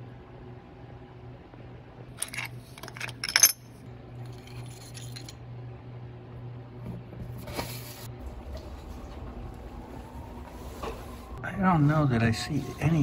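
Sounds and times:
steady low hum: 0.0 - 13.0
socket wrench clinking on metal: 2.2 - 3.7.

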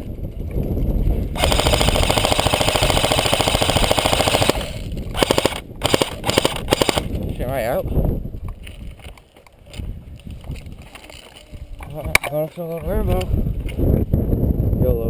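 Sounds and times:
electric toy gun firing rapid clicks: 1.4 - 7.1.

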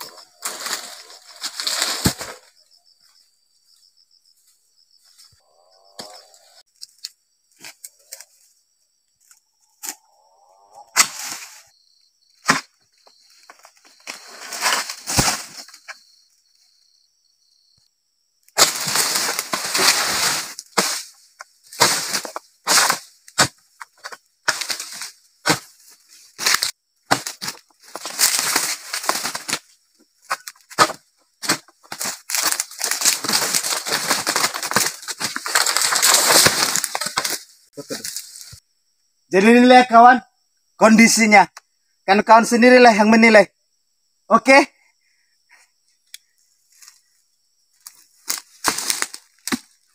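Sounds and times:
palm fronds rustling and crashing: 0.0 - 2.5, 13.4 - 16.0, 18.6 - 38.6, 47.8 - 49.9
blade chopping palm fronds: 18.6 - 25.7, 26.4 - 29.7, 30.3 - 37.4, 48.2 - 49.8.

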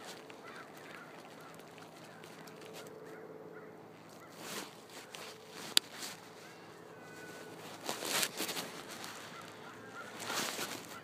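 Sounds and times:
honking bird calls: 0.0 - 11.0
brief rustling: 4.0 - 11.0.

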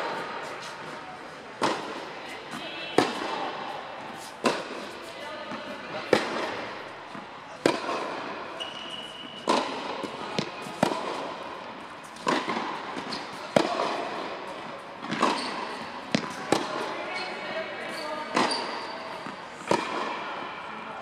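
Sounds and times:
tennis balls struck by rackets: 1.5 - 20.5
balls bouncing on hard court: 1.6 - 3.6, 4.2 - 20.4
high squeak: 8.6 - 9.4.

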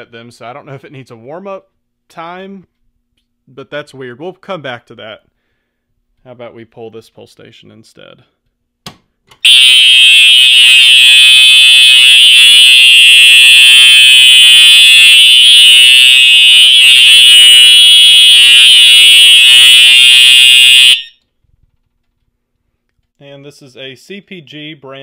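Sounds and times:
fire alarm horn buzzing: 9.4 - 21.2.

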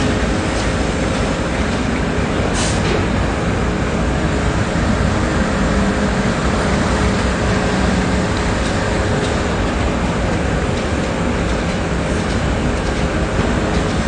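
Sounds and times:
city street traffic drone: 0.0 - 14.0.

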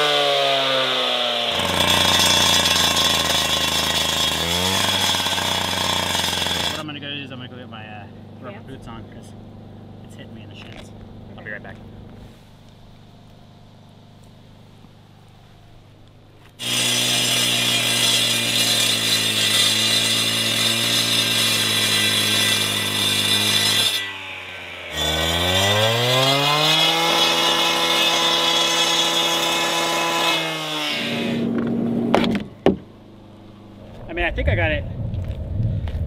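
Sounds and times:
cut-off saw cutting concrete: 0.0 - 7.0, 16.6 - 31.5
low hum: 31.3 - 36.0.

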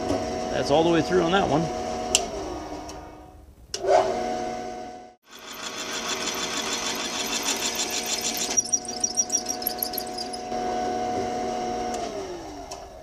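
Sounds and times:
drill cutting into metal: 5.3 - 10.4
high squeaks: 5.3 - 10.5
machine spindle whining: 5.3 - 10.5.

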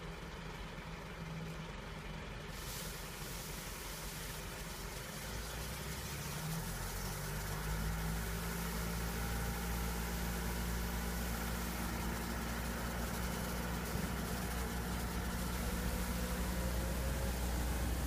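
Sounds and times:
diesel engine humming: 0.0 - 18.0.

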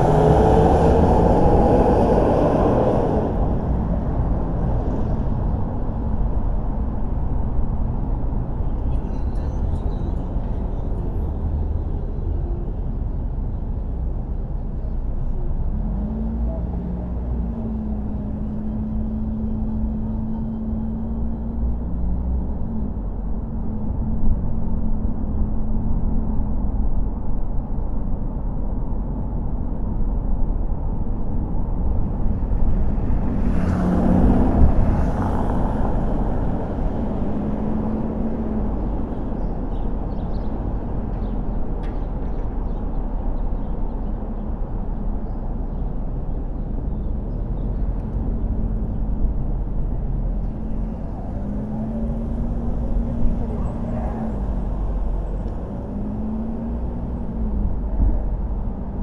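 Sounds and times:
rush of noise: 0.0 - 8.8
car road and engine rumble: 0.0 - 59.0.

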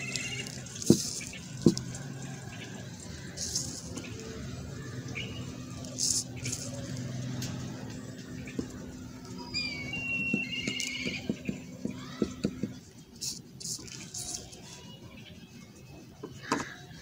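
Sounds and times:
bird chirping: 0.0 - 6.8, 7.9 - 11.7
matchstick scratching in keyhole: 3.4 - 4.0, 13.2 - 14.6.

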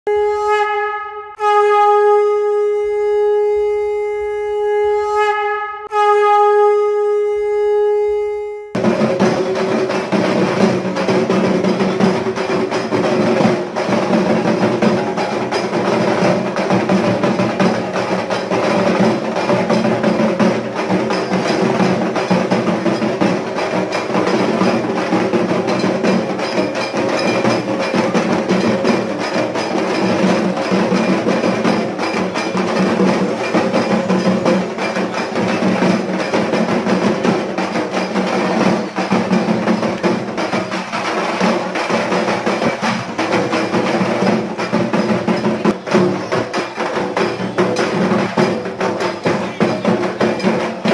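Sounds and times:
conch shell blown: 0.1 - 8.8
dense fast drumming: 8.8 - 50.9.

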